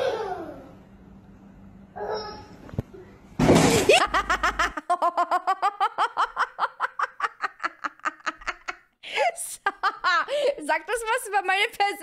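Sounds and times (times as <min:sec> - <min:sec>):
woman laughing high-pitched: 0:03.8 - 0:10.6.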